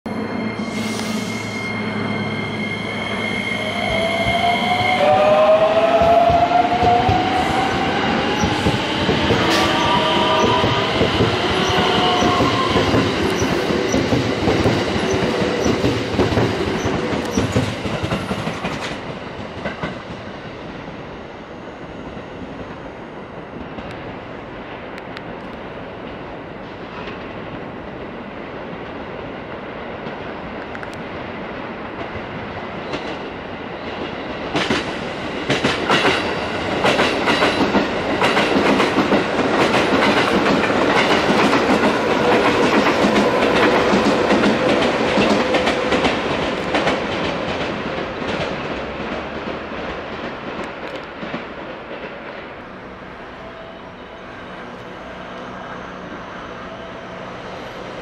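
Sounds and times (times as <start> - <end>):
train wheels clacking on rails: 5.8 - 20.4, 32.0 - 52.6.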